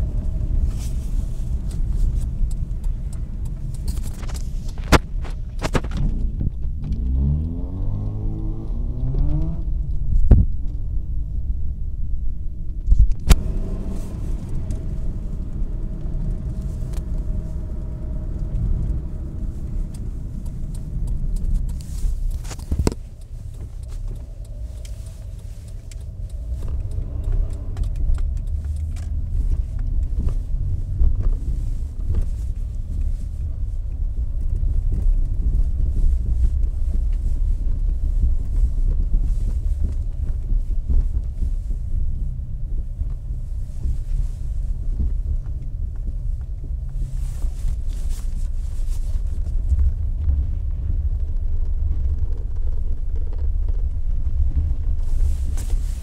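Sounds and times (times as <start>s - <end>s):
car engine and road noise: 0.0s - 56.0s.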